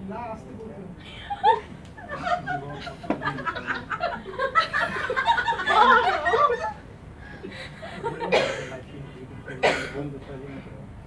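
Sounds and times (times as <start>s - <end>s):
people giggling and snickering: 1.1s - 6.8s.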